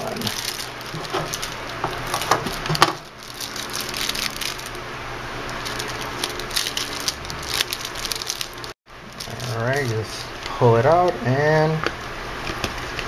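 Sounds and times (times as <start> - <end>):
plastic bag crinkling: 0.0 - 4.8, 5.4 - 10.0.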